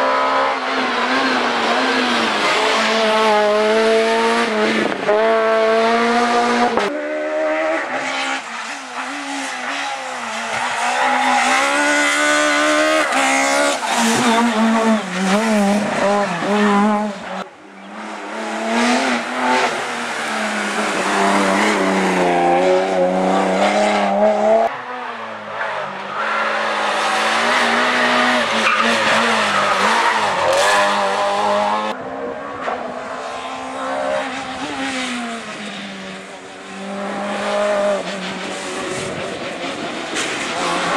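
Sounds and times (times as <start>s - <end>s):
rally car engines revving: 0.0s - 40.9s.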